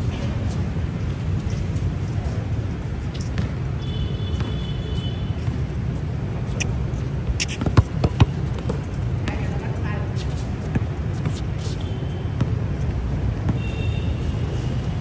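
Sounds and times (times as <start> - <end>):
basketball bouncing: 3.3 - 3.6, 7.4 - 9.6.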